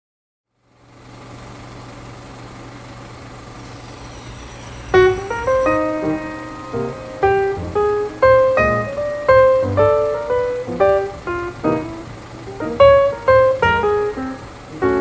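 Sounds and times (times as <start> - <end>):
faint hiss and hum: 0.5 - 15.0
piano notes: 3.6 - 15.0.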